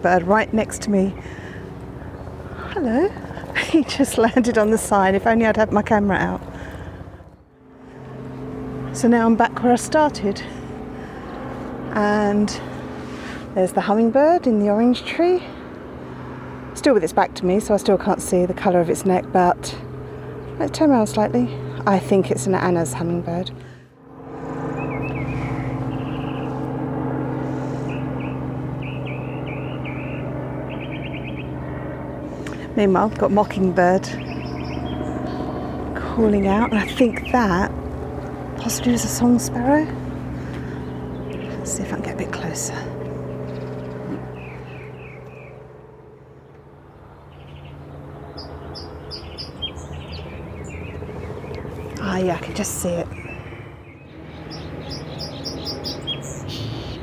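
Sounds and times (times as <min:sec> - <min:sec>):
vehicle engine humming: 0:00.0 - 0:57.0
mockingbird chirping: 0:24.6 - 0:26.6, 0:27.7 - 0:31.8, 0:33.0 - 0:37.7, 0:38.6 - 0:45.7, 0:46.4 - 0:57.0.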